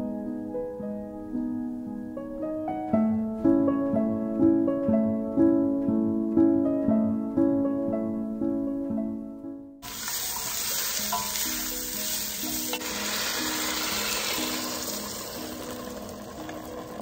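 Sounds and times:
stock being poured: 9.8 - 17.0
vegetables sizzling in a pot: 9.8 - 17.0.

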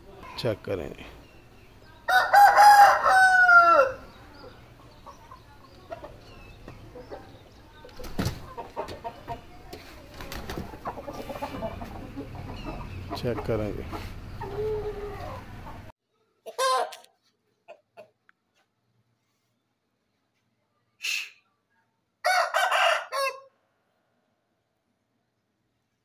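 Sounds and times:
rooster crowing: 2.1 - 4.2, 22.2 - 23.6.

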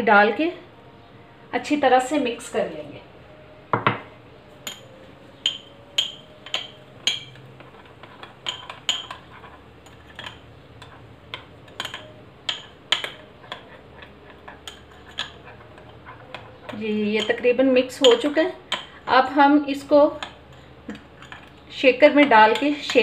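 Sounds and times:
metal spoon clinking glass bowl: 4.6 - 19.2, 19.8 - 21.7, 22.4 - 23.0.

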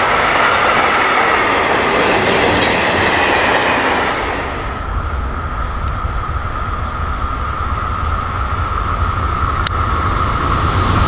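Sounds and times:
train wheels rumbling on rail: 0.0 - 11.0
high ringing: 2.0 - 4.8.

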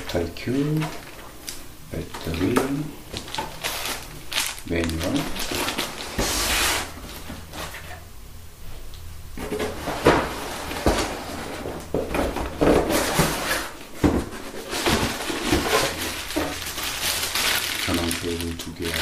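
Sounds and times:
cardboard rustling and scraping: 2.2 - 8.0, 9.4 - 18.4.

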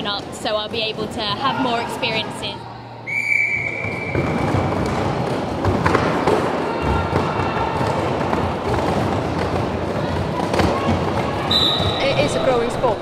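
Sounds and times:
voices echoing: 0.0 - 3.1, 6.3 - 13.0
thuds of bodies and skates: 3.8 - 12.2
roller skate wheels rolling and scraping: 3.8 - 12.8.

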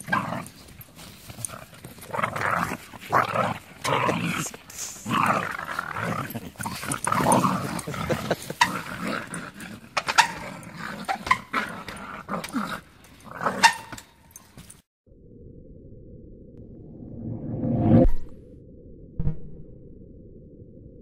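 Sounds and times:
dogs whining and yipping: 6.6 - 14.7.

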